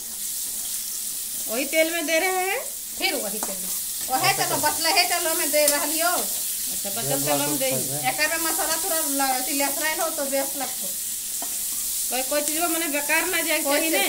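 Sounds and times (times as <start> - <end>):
onions sizzling in oil: 0.0 - 14.0.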